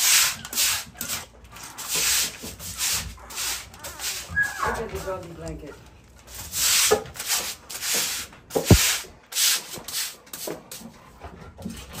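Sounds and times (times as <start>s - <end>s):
brush scrubbing wet concrete: 0.0s - 5.5s, 6.3s - 10.8s
sharp knock: 8.6s - 8.9s.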